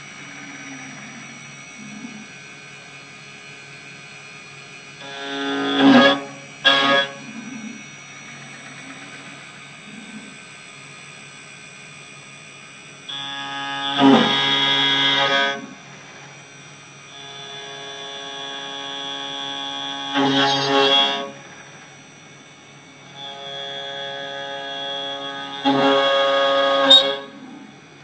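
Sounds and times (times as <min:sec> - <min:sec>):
spindle high whine: 0:04.8 - 0:28.0
end mill screeching: 0:05.0 - 0:07.2, 0:13.1 - 0:15.7, 0:17.2 - 0:21.5, 0:23.1 - 0:27.4.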